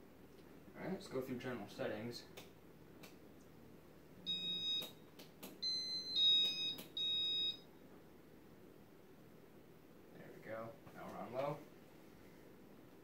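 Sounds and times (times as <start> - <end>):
short electronic beeps: 4.3 - 5.0, 5.6 - 7.6.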